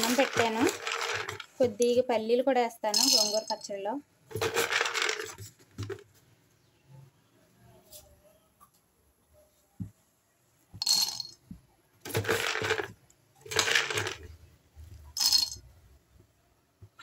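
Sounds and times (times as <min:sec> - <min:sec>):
peanuts rattling into iron pan: 0:00.0 - 0:01.7, 0:03.0 - 0:03.6, 0:04.3 - 0:05.4, 0:10.8 - 0:11.3, 0:12.1 - 0:14.3, 0:15.2 - 0:15.6.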